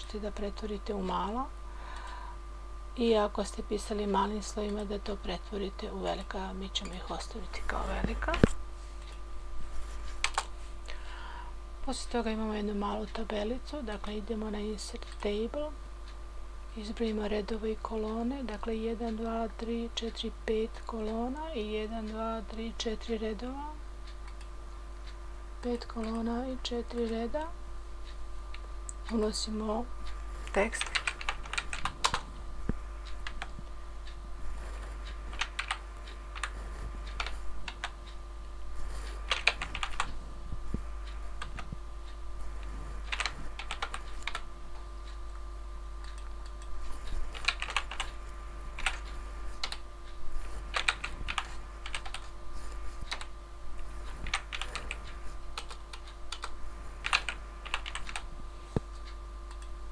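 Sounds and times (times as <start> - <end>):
faint steady hum: 0.0 - 59.9
typing on computer keyboard: 30.8 - 32.3, 35.3 - 35.8, 39.3 - 40.1, 43.1 - 44.5, 47.3 - 48.1, 48.8 - 49.8, 50.7 - 52.3, 54.2 - 58.2.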